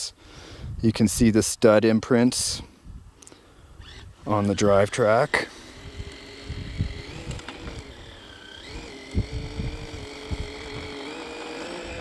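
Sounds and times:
distant electric motor whine: 0:03.8 - 0:12.0.

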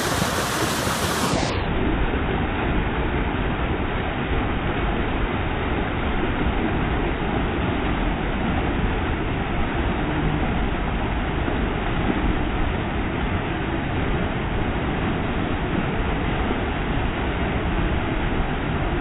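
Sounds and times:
flood water rushing: 0:00.0 - 0:01.6.

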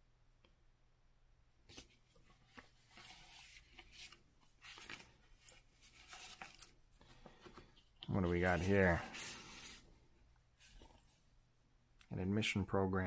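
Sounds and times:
paper and card rustling: 0:01.7 - 0:09.9.

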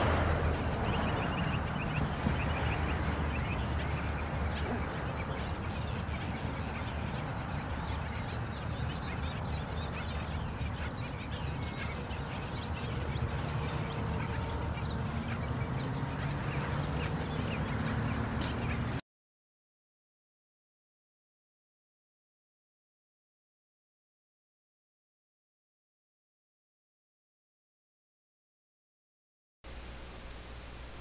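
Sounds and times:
bird colony calling: 0:00.0 - 0:19.0.

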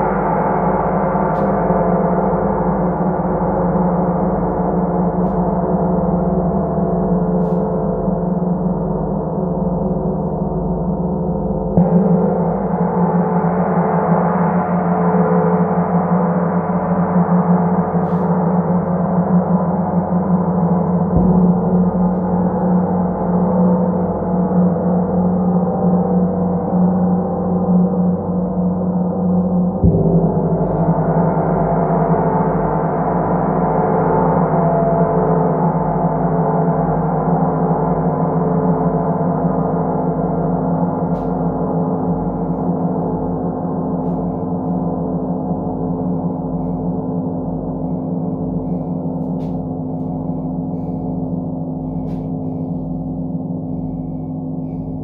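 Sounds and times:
soft mallet strike on gong: 0:20.9 - 0:23.6.

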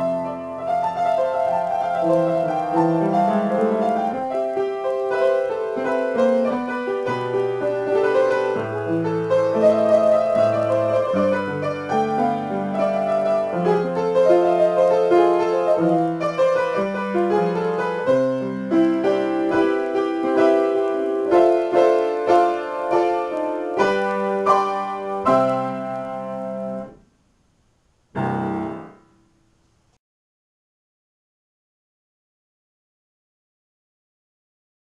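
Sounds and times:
acoustic piano improvisation: 0:00.0 - 0:30.0.

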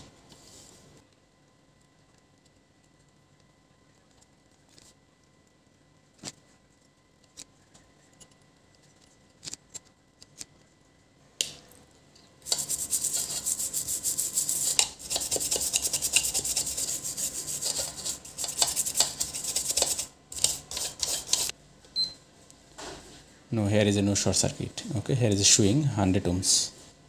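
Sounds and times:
brush scrubbing circuit board: 0:12.4 - 0:21.5.

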